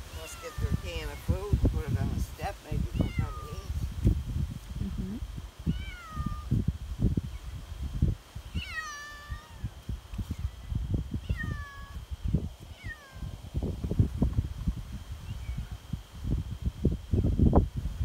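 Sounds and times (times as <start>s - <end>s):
low rumbling on microphone: 0.0s - 18.0s
cat meowing: 3.0s - 3.6s, 5.7s - 6.5s, 8.6s - 9.7s, 11.2s - 12.0s, 12.7s - 13.4s.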